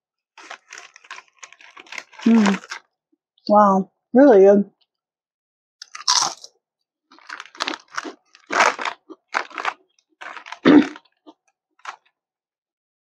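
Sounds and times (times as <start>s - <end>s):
potato chip crunching: 0.4s - 2.8s, 5.8s - 6.5s, 7.1s - 12.1s.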